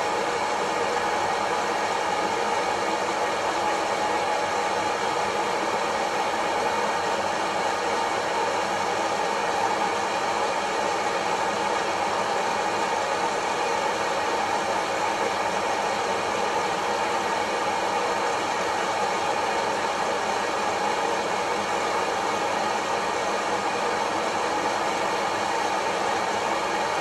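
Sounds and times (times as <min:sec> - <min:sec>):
coffee roaster fan whooshing: 0:00.0 - 0:27.0.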